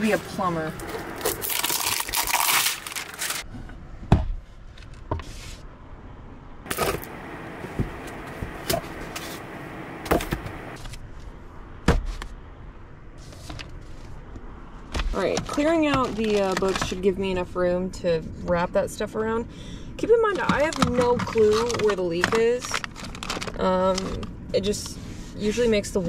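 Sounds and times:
tape roll rustling and crackling: 0:00.8 - 0:03.4, 0:15.4 - 0:17.0, 0:20.7 - 0:24.3.

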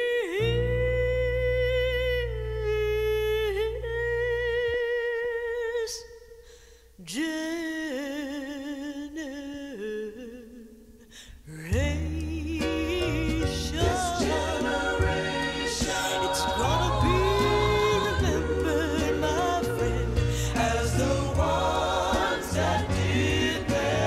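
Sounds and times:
solo voice singing with vibrato: 0:07.0 - 0:24.0.

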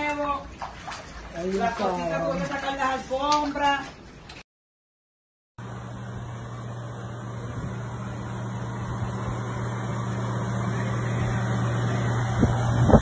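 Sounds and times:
low hum: 0:05.6 - 0:13.0.

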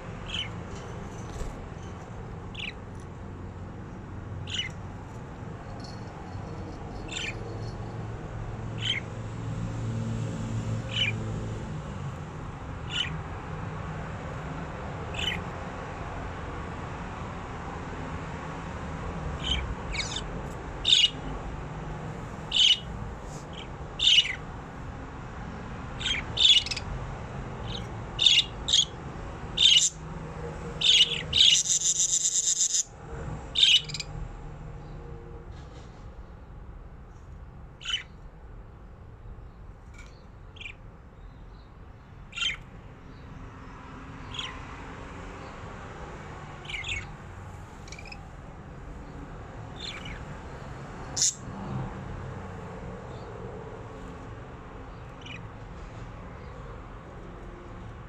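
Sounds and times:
budgerigars chirping: 0:00.2 - 0:00.6, 0:02.5 - 0:02.8, 0:04.4 - 0:04.8, 0:07.0 - 0:07.5, 0:08.8 - 0:09.1, 0:10.9 - 0:11.2, 0:12.8 - 0:13.2, 0:15.1 - 0:15.4, 0:19.4 - 0:21.3, 0:22.5 - 0:22.9, 0:23.5 - 0:24.4, 0:26.0 - 0:26.9, 0:27.6 - 0:29.0, 0:29.6 - 0:30.0, 0:30.8 - 0:32.9, 0:33.6 - 0:34.1, 0:37.8 - 0:38.2, 0:40.6 - 0:40.8, 0:42.3 - 0:42.6, 0:44.2 - 0:44.6, 0:46.6 - 0:47.2, 0:47.8 - 0:48.2, 0:49.7 - 0:50.3, 0:51.1 - 0:51.4, 0:54.9 - 0:55.4
rapid rasping bird call: 0:30.8 - 0:32.9, 0:51.2 - 0:51.4.

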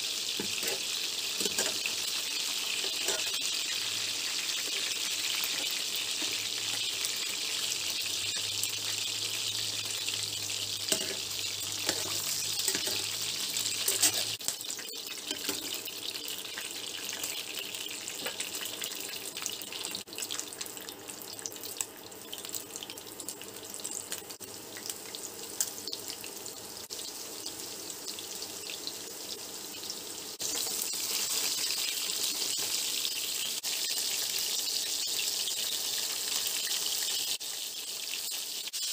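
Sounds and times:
liver sizzling in hot oil: 0:00.0 - 0:38.9
metal utensils clicking on pan: 0:00.4 - 0:00.8, 0:01.4 - 0:01.9, 0:02.8 - 0:03.5, 0:10.9 - 0:15.8.

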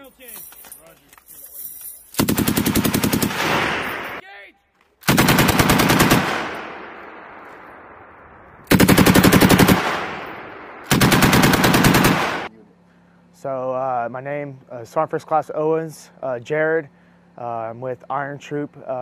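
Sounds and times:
machine gun bursts: 0:02.2 - 0:04.2, 0:05.0 - 0:06.8, 0:08.7 - 0:12.5
gunshot echo: 0:03.3 - 0:04.2.

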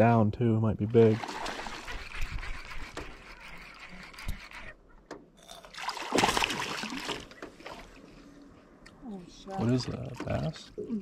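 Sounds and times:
fish splashing in water: 0:01.1 - 0:04.7, 0:05.6 - 0:08.0.

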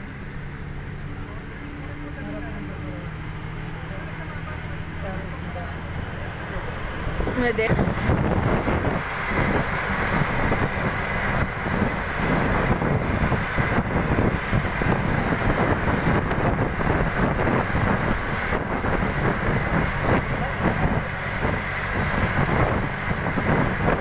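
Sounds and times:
vehicle road noise: 0:00.0 - 0:24.0
wind buffeting microphone: 0:04.7 - 0:24.0.

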